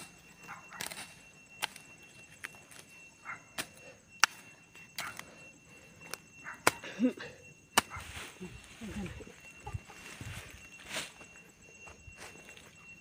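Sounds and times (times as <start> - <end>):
hand hoe chopping into soil: 0.7 - 1.8.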